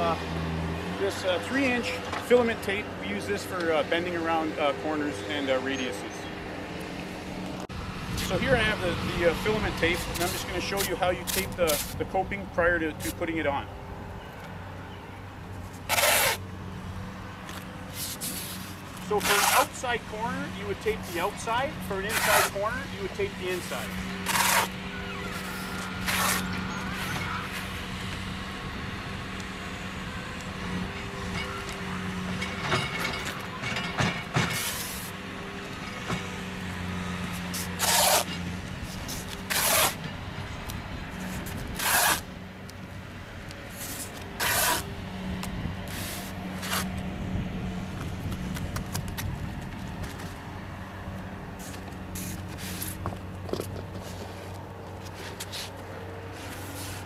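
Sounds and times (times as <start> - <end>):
low engine hum: 0.0 - 57.0
tape ripping off roll: 10.2 - 12.0, 15.8 - 16.4, 17.9 - 19.8, 24.2 - 26.5, 37.5 - 38.3, 39.1 - 40.0, 41.3 - 42.2, 43.7 - 44.9.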